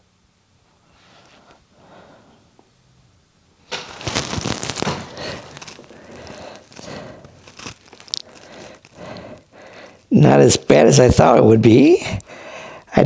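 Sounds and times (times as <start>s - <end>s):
rustling crinkling handling noise: 3.6s - 10.1s.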